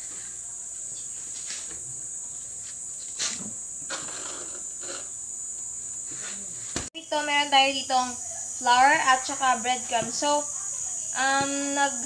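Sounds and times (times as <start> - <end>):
crickets chirring: 0.0 - 12.0.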